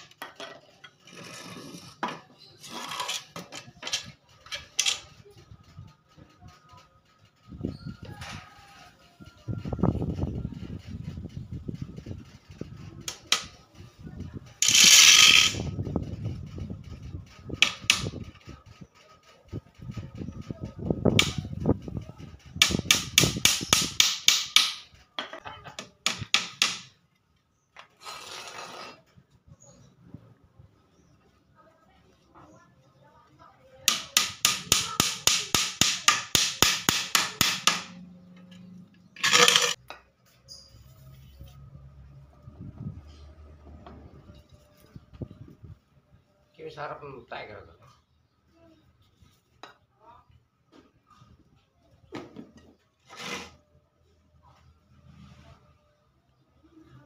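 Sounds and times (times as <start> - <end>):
hammer tapping nails: 22.6 - 24.8, 26.1 - 26.9, 33.9 - 38.0
short loud scraping: 28.0 - 29.1, 53.1 - 53.6.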